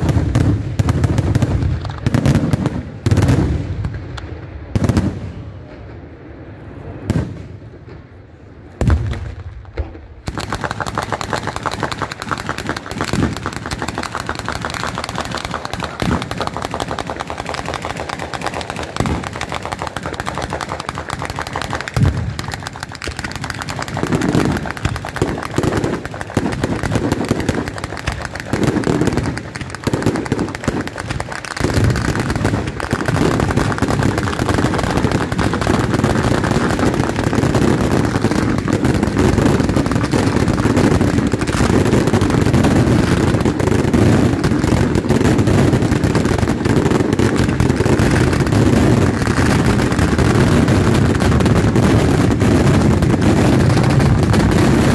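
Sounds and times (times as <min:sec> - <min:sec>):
firecrackers crackling: 0:00.0 - 0:54.9
firework bangs: 0:00.0 - 0:54.9.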